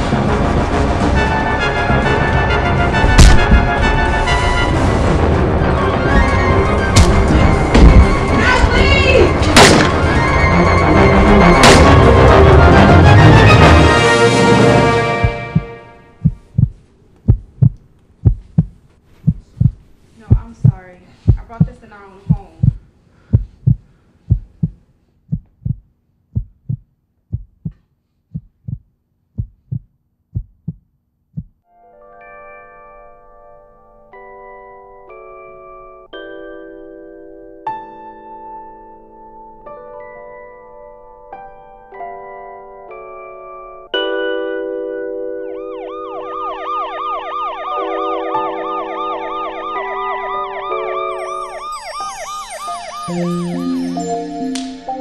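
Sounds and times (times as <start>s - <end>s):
heartbeat thumps: 3.0s - 3.9s, 7.0s - 8.2s, 15.1s - 31.6s
emergency vehicle siren: 45.4s - 55.0s
soft sustained music chords: 47.7s - 55.0s.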